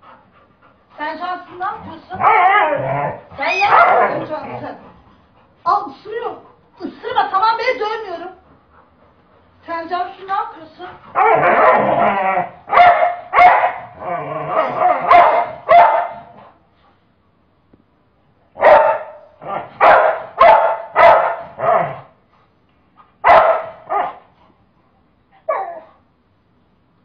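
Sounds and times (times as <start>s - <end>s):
dog barking: 3.6s - 4.4s, 11.1s - 11.9s, 12.7s - 14.0s, 14.6s - 16.4s, 18.6s - 22.1s, 23.2s - 24.2s.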